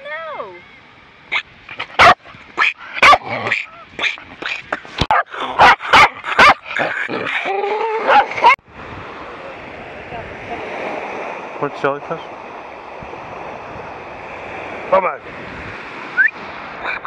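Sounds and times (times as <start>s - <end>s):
dog barking excitedly: 1.3s - 7.4s, 8.0s - 8.6s.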